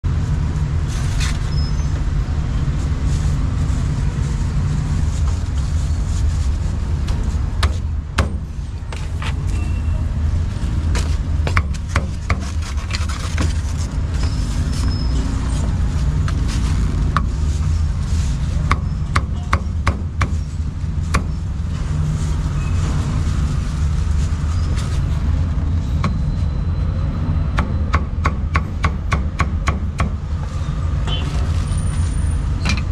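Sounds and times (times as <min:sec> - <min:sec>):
motorbikes: 0:00.0 - 0:19.8, 0:20.4 - 0:27.9
street traffic rumble: 0:00.0 - 0:32.9
cleaver chopping on wooden block: 0:27.6 - 0:30.2.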